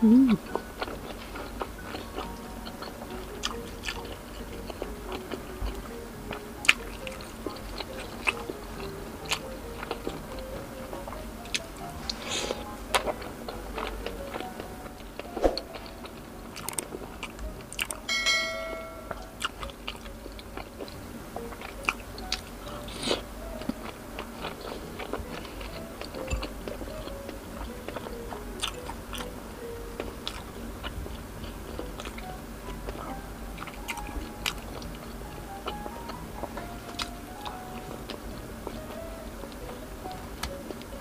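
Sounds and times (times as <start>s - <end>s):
biting and chewing fried food: 0.0s - 18.4s, 19.0s - 41.0s
brief ringing tone: 18.1s - 19.2s.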